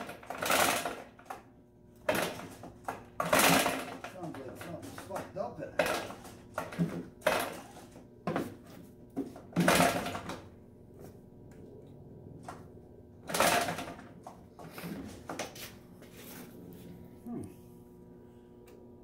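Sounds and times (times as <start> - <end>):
recoil starter cord whirring: 0.0 - 7.8.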